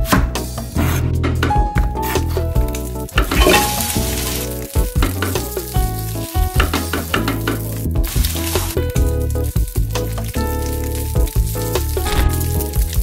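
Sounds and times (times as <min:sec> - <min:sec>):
background music: 0:00.0 - 0:13.0
vegetables sizzling in oil: 0:02.8 - 0:13.0.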